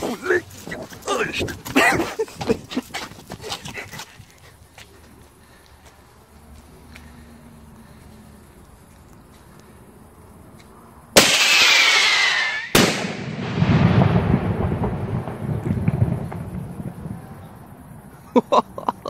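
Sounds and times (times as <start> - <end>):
firework screaming whistle: 11.2 - 13.2
firework bang: 11.2 - 17.2
rumbling echo: 12.8 - 17.4.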